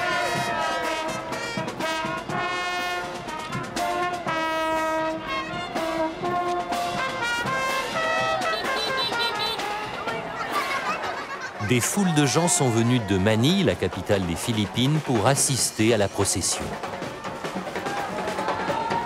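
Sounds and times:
marching brass band playing: 0.0s - 10.9s.

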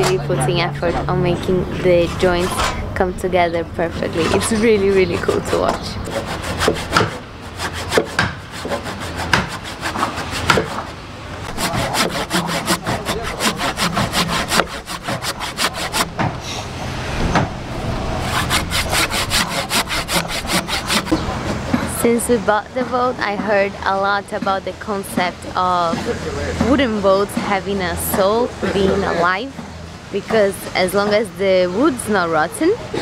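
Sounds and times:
handsaw cutting wood: 4.0s - 16.4s, 18.2s - 21.3s.

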